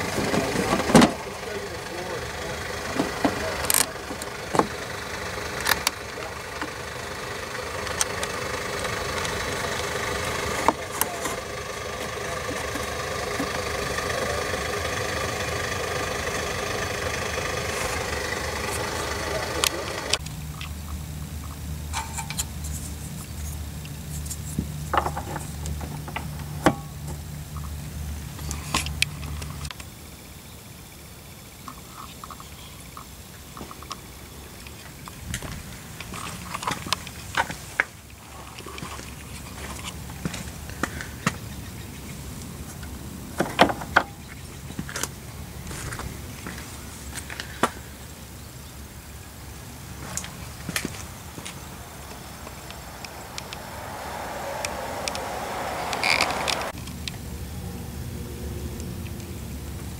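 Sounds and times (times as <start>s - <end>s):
low background rumble: 49.2s - 58.3s
low hum: 49.4s - 58.9s.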